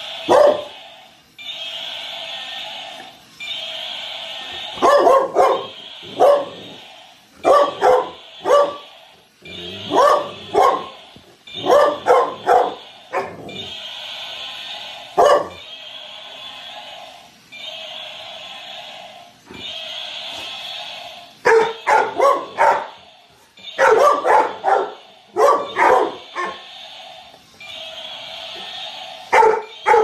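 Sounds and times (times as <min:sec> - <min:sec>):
large dog barking: 0:00.3 - 0:00.7, 0:04.8 - 0:06.6, 0:07.4 - 0:08.8, 0:09.8 - 0:11.0, 0:11.6 - 0:13.4, 0:15.2 - 0:15.6, 0:21.4 - 0:22.9, 0:23.8 - 0:26.6, 0:29.3 - 0:30.0.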